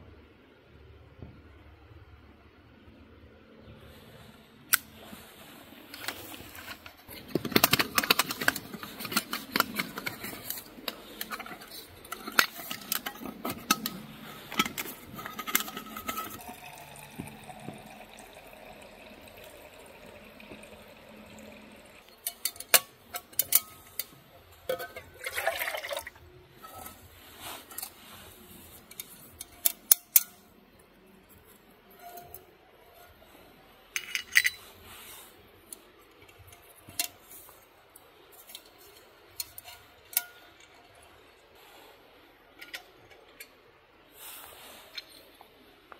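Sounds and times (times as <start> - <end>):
metal pots clinking and scraping: 4.7 - 45.6
water poured into metal mug: 16.1 - 22.0, 25.0 - 26.2.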